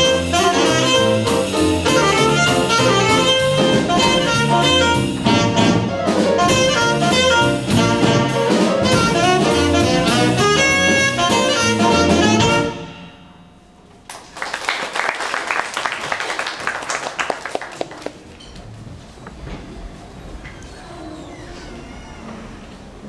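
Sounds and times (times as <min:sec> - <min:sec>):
jazz combo playing: 0:00.0 - 0:13.8
audience clapping: 0:14.0 - 0:18.4.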